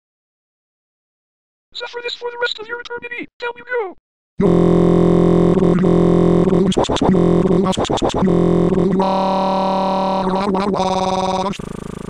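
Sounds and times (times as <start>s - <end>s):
synthesizer tones: 4.4s - 11.6s.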